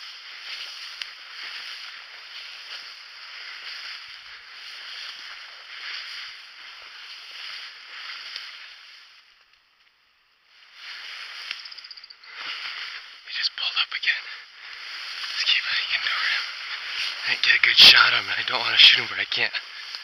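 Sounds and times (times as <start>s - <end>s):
footsteps rustling through dry ferns: 0.0s - 20.0s
small snaps of stems: 0.5s - 3.0s, 7.6s - 10.0s, 19.8s - 20.0s.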